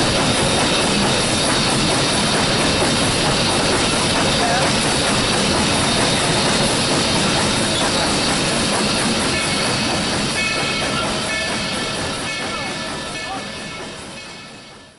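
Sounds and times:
steam locomotive wheels on rails: 0:00.0 - 0:14.9.

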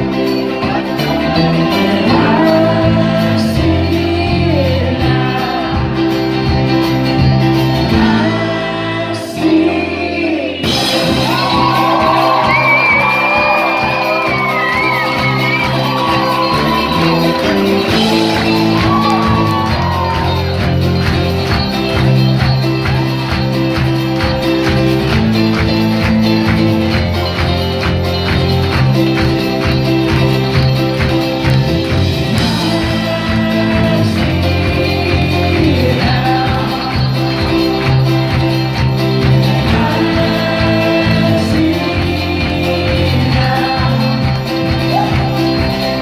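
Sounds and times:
live band playing folk-pop: 0:00.0 - 0:46.0
voices singing along: 0:00.4 - 0:06.5, 0:07.8 - 0:20.8, 0:32.3 - 0:38.3, 0:39.1 - 0:44.8.

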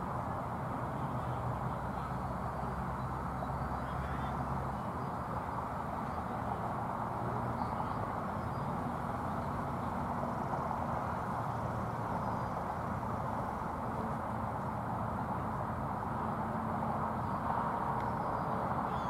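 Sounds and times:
outdoor background noise: 0:00.0 - 0:19.0
faint distant voices: 0:00.7 - 0:10.0.

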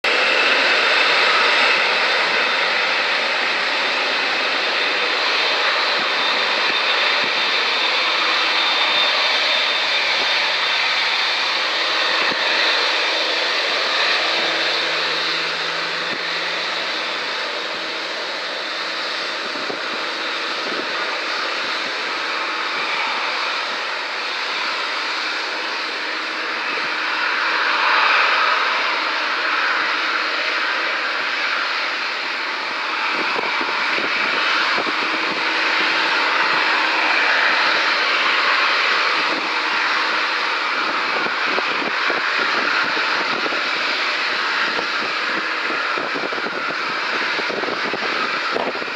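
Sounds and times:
jet engine rush: 0:00.0 - 0:48.9
high fan whine: 0:09.6 - 0:31.3.

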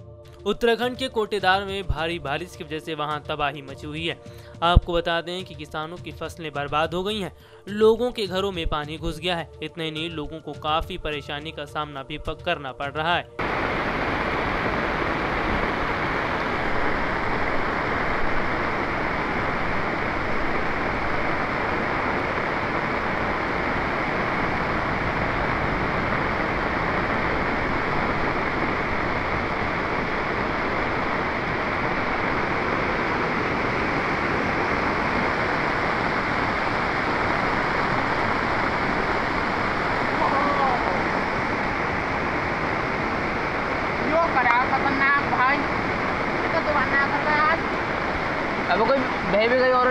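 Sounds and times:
floodwater rushing: 0:13.4 - 0:49.9.

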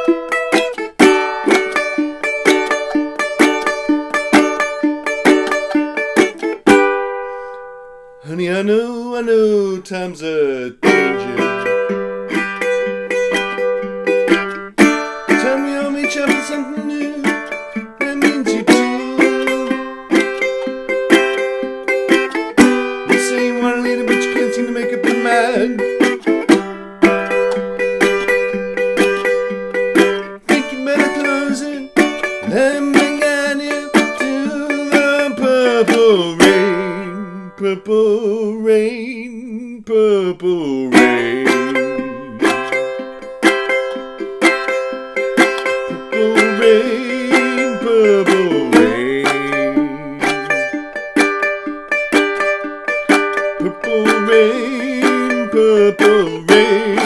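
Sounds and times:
bluegrass resonator guitar picking: 0:00.0 - 0:57.0.

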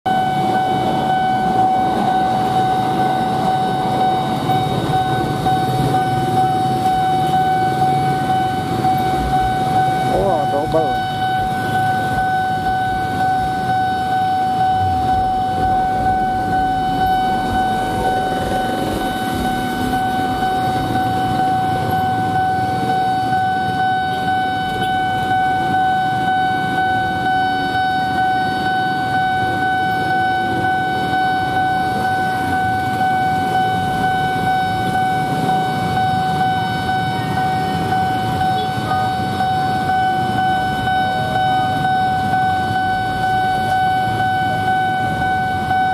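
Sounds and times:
idling engines rumble: 0:00.1 - 0:27.3
level-crossing warning tone: 0:00.1 - 0:45.9.

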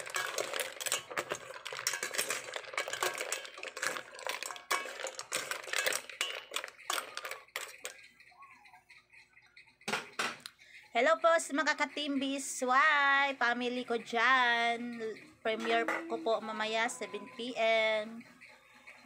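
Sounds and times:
mussel shells clattering: 0:00.0 - 0:08.2.

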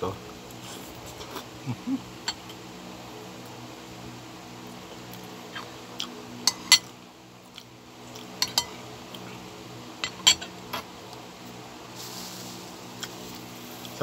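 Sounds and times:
steady low hum: 0:00.0 - 0:14.0
cutlery clinking on ceramic bowl: 0:08.4 - 0:08.7, 0:10.0 - 0:10.8.

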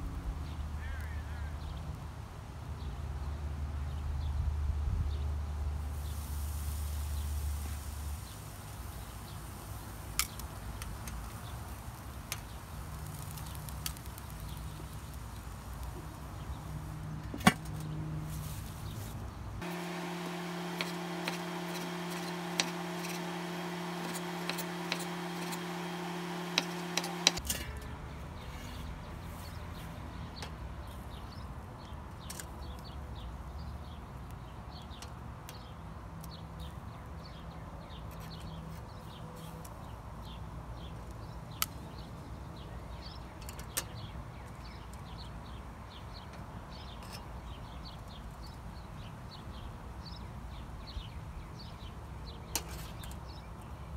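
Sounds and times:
outdoor grilling background: 0:00.0 - 0:53.9
steady hum: 0:19.6 - 0:27.4.

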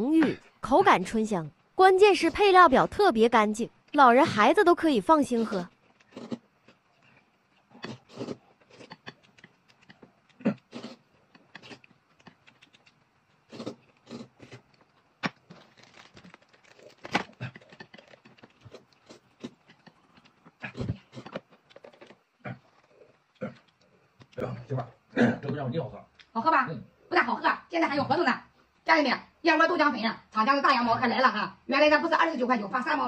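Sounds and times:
noodles slurped and chewed: 0:05.4 - 0:24.4.

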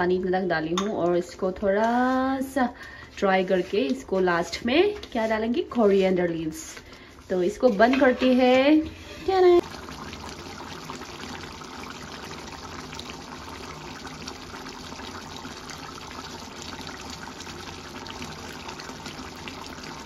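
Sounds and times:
curry bubbling in a pan: 0:08.9 - 0:20.0.

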